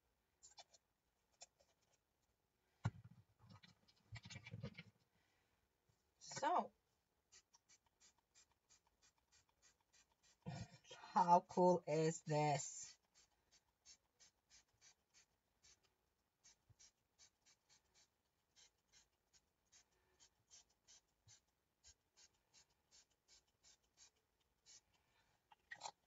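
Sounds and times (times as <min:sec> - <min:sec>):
scratchy strokes on paper: 0:07.3 - 0:10.4, 0:12.5 - 0:25.0.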